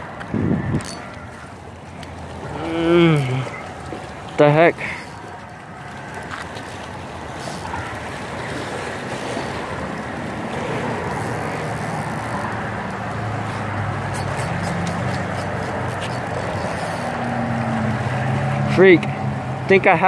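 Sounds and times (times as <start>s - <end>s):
engine droning: 0.0s - 20.0s
wind: 0.0s - 20.0s
water lapping: 1.0s - 18.7s
faint clicks: 14.1s - 17.4s.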